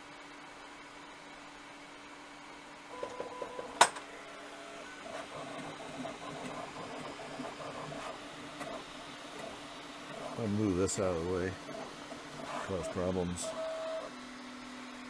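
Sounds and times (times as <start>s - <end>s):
printer ticks and click: 5.1s - 14.0s.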